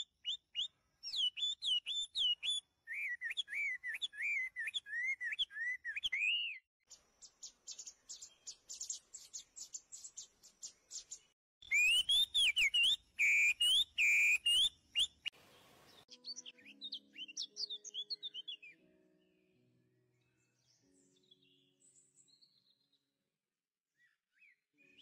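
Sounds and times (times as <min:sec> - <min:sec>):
fast high bird chirping: 0:10.9 - 0:15.3
bird whistling phrase: 0:11.6 - 0:15.2.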